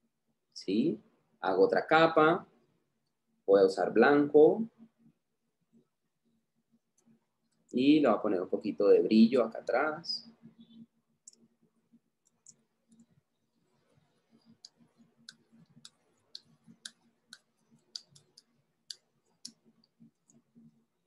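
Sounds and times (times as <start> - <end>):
computer mouse clicks: 10.6 - 11.5, 12.2 - 13.2, 14.4 - 20.8.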